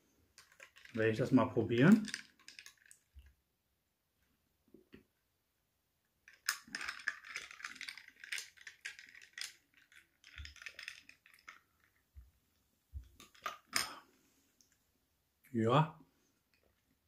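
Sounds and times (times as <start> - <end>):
ice cubes clinking in glass: 0.4 - 3.1, 6.3 - 11.6.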